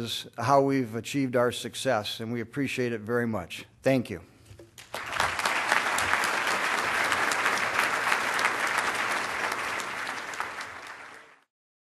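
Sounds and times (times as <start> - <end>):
audience applauding: 4.8 - 11.5.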